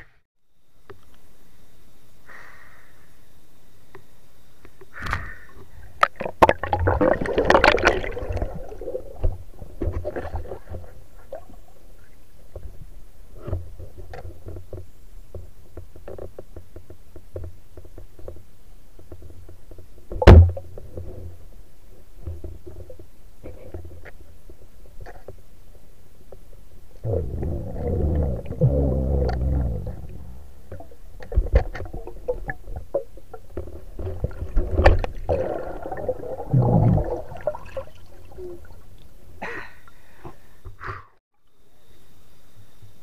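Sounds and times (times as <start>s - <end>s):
underwater clicks and knocks: 6.0s - 10.9s, 13.4s - 21.2s, 27.1s - 37.7s
underwater water rush: 6.1s - 11.5s, 27.0s - 38.8s
loud thump: 20.2s - 20.6s.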